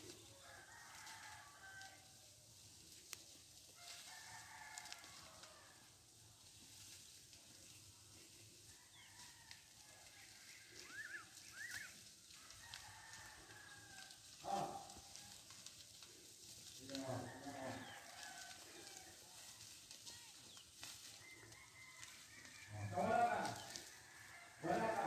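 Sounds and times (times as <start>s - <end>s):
rooster crowing: 0.4s - 2.2s, 3.8s - 5.9s, 8.7s - 11.4s, 12.3s - 15.6s, 16.9s - 19.9s, 21.2s - 25.0s.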